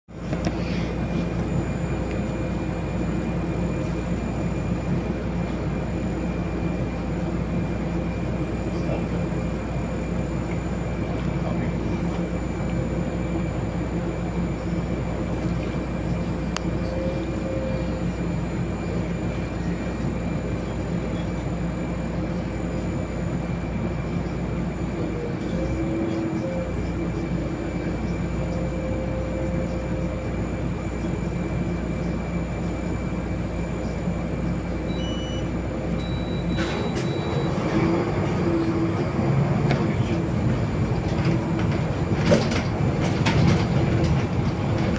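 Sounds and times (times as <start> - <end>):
bus idling hum: 0.1 - 44.9
short high beeps: 34.9 - 37.7.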